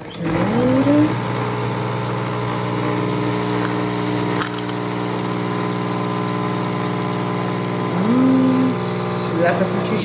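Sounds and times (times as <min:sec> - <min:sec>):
coffee machine pump humming: 0:00.0 - 0:10.0.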